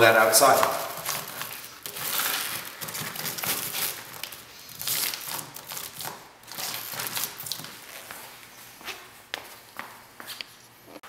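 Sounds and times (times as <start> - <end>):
foil duct crinkling: 0.4 - 7.8.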